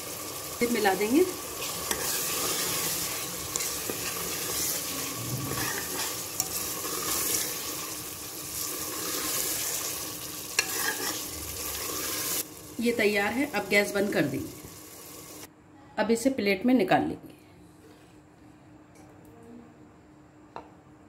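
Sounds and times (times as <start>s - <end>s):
meat sizzling in a pot: 0.0s - 15.5s
metal spoon scraping and tapping: 1.9s - 2.6s, 3.5s - 4.7s, 5.5s - 7.3s, 10.6s - 11.2s.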